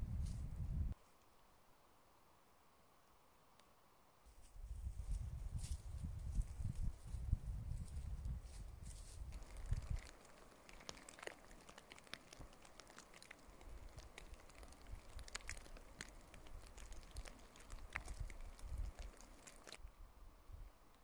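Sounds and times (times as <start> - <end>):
sleet pattering: 4.3 - 19.8.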